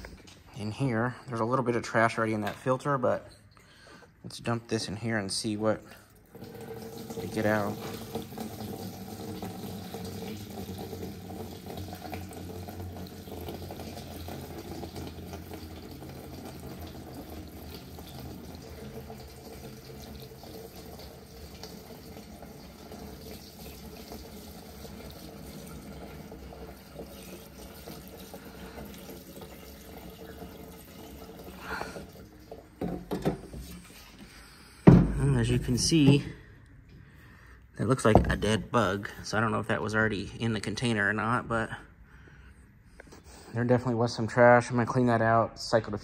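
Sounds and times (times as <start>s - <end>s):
gasoline pouring through funnel: 4.8s - 36.4s.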